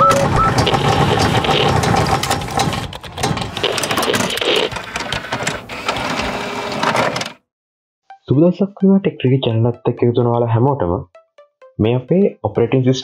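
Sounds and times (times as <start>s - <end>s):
rapid mechanical clicks and whirring: 0.0s - 7.4s.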